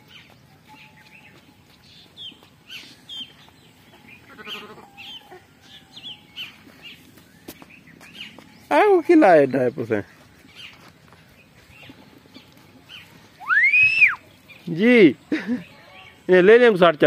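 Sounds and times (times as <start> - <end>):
small birds chirping: 0.0 - 17.0
goat bleat: 4.2 - 5.0.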